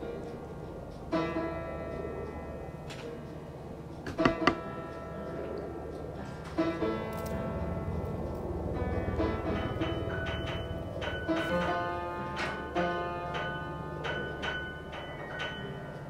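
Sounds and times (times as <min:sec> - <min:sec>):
low steady rumble: 0:04.6 - 0:14.9.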